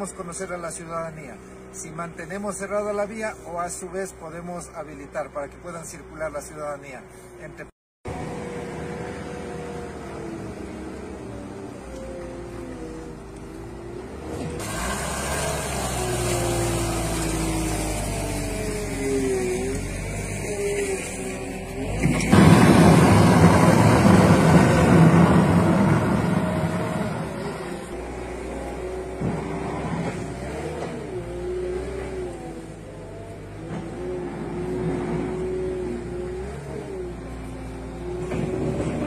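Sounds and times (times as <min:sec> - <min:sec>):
vehicle engine revving: 0:08.1 - 0:39.0.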